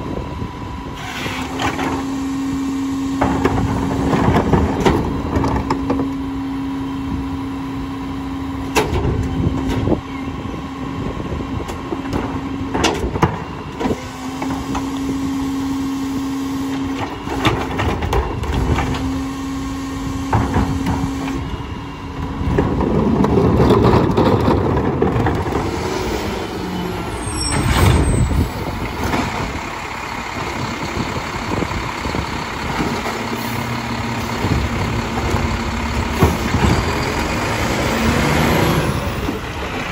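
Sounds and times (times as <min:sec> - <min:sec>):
garbage truck engine idling: 0:13.3 - 0:39.9
engine revving: 0:25.1 - 0:29.6, 0:32.6 - 0:39.9.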